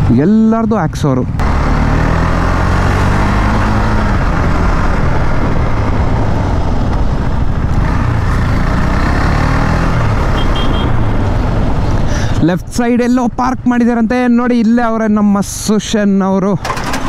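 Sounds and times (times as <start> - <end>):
motorcycle engine running: 1.4 - 11.8
wind rush: 2.0 - 10.2, 10.8 - 12.6.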